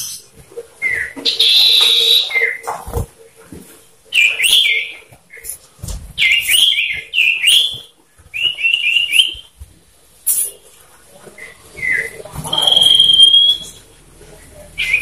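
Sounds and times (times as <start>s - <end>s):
bird whistling calls: 0.8s - 2.7s, 6.2s - 9.5s, 11.4s - 13.8s, 14.8s - 15.0s.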